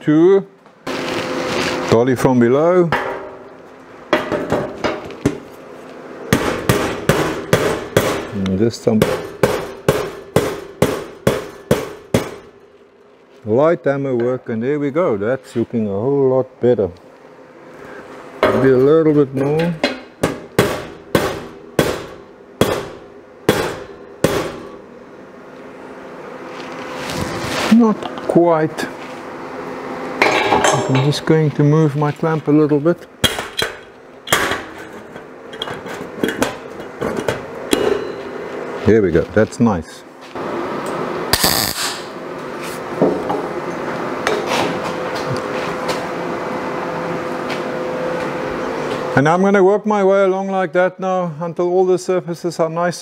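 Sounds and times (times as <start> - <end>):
workshop hum: 0.0 - 53.0
hammer tapping sheet steel: 6.3 - 12.5, 19.8 - 24.8.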